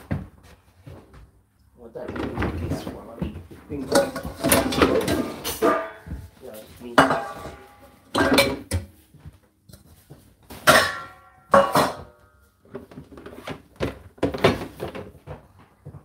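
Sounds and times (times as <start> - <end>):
dishes clattering into racks: 3.8 - 8.9, 10.5 - 15.2.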